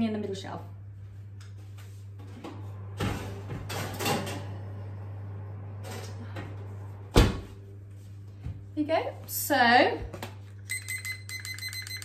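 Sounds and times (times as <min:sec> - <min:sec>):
oven door shutting with a bang: 0:07.1 - 0:07.6.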